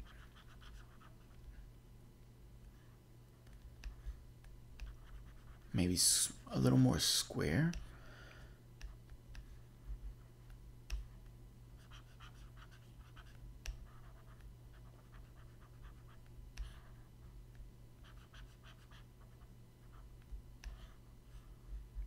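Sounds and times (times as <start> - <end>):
stylus scratching on tablet: 0.0 - 1.7, 2.7 - 4.2, 4.8 - 6.1, 8.8 - 17.4, 18.0 - 21.1
low steady hum: 0.0 - 22.0.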